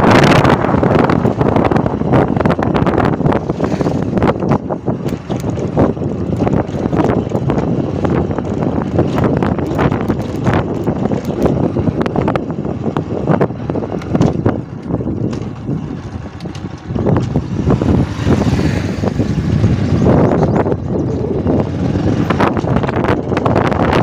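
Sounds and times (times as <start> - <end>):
motorcycle engine running: 0.0 - 24.0
wind buffeting microphone: 0.0 - 24.0.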